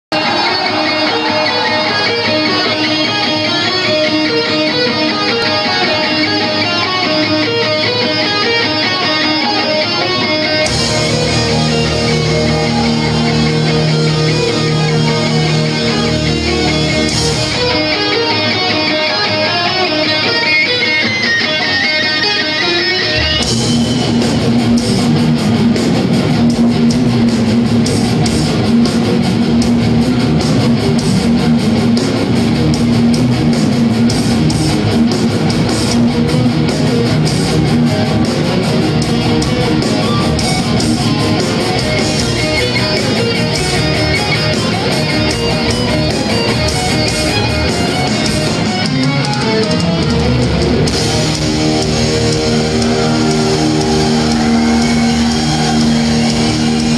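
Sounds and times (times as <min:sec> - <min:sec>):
bass guitar: 0:00.1 - 0:56.9
distorted electric guitars: 0:00.1 - 0:56.9
drums and cymbals crashing: 0:10.5 - 0:18.2, 0:23.1 - 0:56.9.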